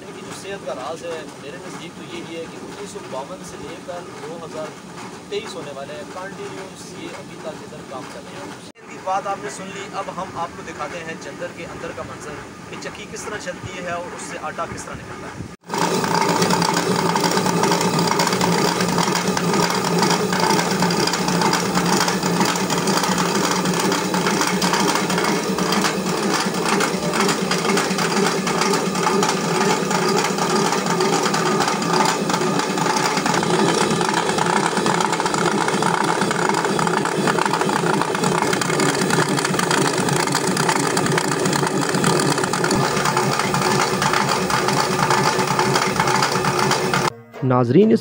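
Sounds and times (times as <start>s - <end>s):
millstone grinding clatter: 15.6s - 47.1s
grain feeder rattling: 15.7s - 47.1s.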